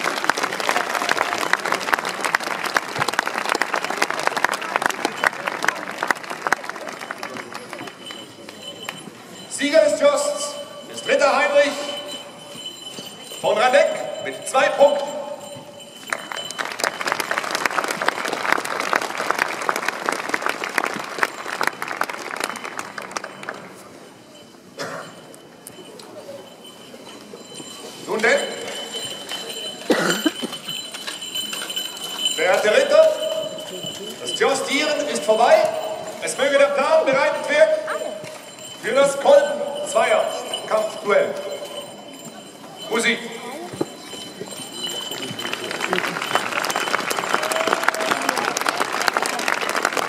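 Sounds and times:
crowd applauding: 0:00.0 - 0:09.0, 0:16.0 - 0:23.8, 0:44.6 - 0:50.0.

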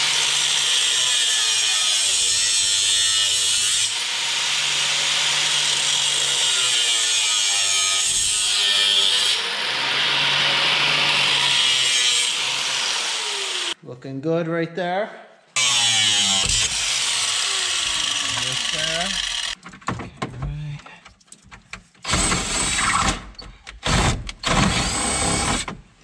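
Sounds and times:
angle grinder cutting metal: 0:00.0 - 0:13.8, 0:15.6 - 0:19.6.

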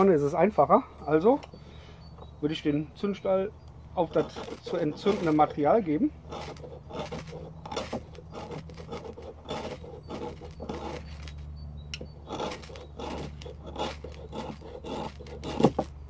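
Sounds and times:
knife rasping on ferro rod: 0:04.0 - 0:16.0.

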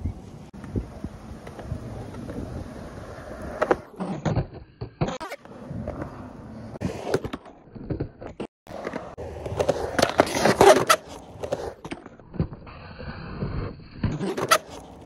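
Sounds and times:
skateboard rolling on concrete: 0:00.0 - 0:15.0.

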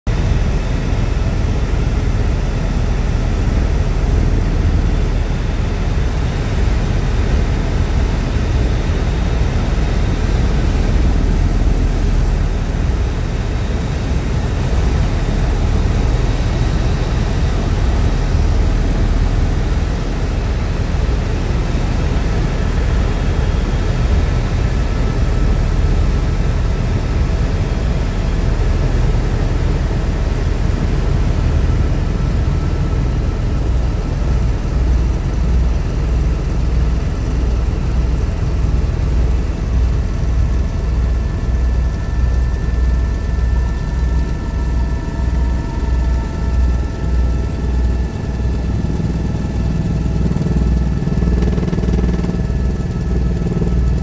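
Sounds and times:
helicopter engine and rotor drone: 0:00.1 - 0:54.0
faint high whine: 0:00.2 - 0:54.0.

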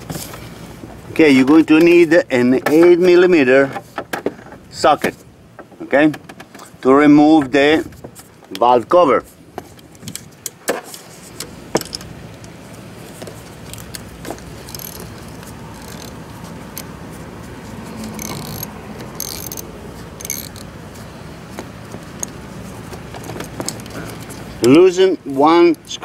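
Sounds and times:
ratchet wrench clicking: 0:13.6 - 0:16.9, 0:18.0 - 0:20.7.

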